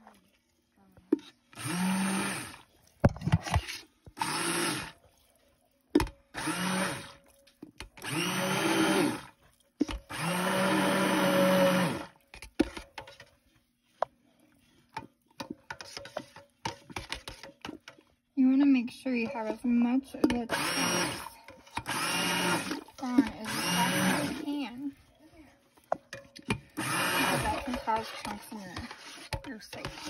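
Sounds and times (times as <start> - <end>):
blender churning liquid: 0.0 - 30.0
stick blender whirring: 1.5 - 5.0, 6.0 - 13.1, 20.3 - 30.0.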